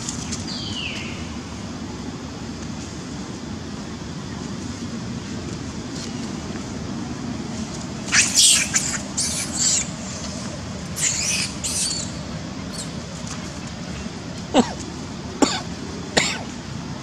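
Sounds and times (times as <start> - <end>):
low background rumble: 0.0 - 17.0
monkeys squealing: 8.1 - 10.2, 10.9 - 13.0.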